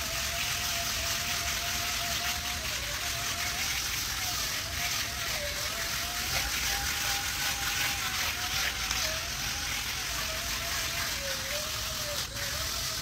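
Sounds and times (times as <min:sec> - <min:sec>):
bristles scrubbing wet mat: 0:00.0 - 0:13.0
cordless screwdriver motor whine: 0:00.0 - 0:13.0.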